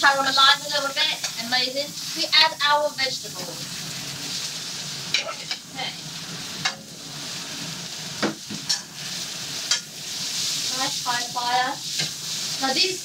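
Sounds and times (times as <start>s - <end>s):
vegetables sizzling in a wok: 0.0s - 13.0s
metal spatula scraping a pan: 4.3s - 7.4s, 8.4s - 10.9s, 11.5s - 12.9s.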